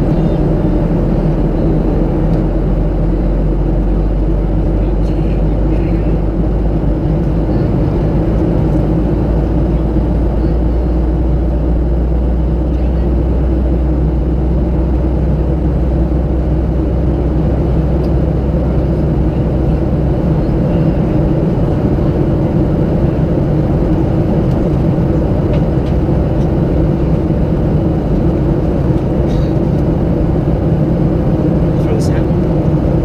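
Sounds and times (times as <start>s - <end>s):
jet engines droning: 0.0s - 33.0s.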